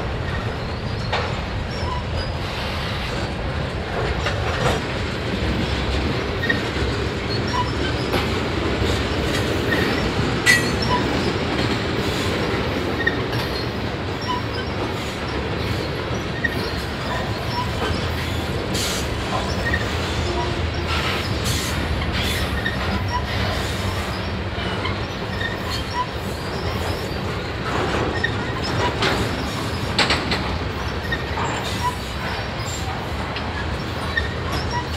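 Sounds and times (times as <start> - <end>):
freight cars rumbling on rails: 0.0 - 34.9
wheels clicking over rail joints: 0.2 - 34.9
wheels squeaking: 6.4 - 32.9.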